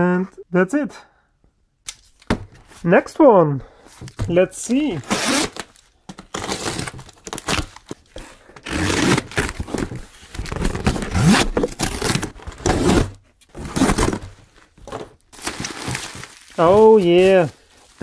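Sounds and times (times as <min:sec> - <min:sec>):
bubble wrap rustling: 0:04.0 - 0:18.0
packing tape tearing: 0:04.9 - 0:18.0
utility knife cutting tape: 0:05.1 - 0:05.7.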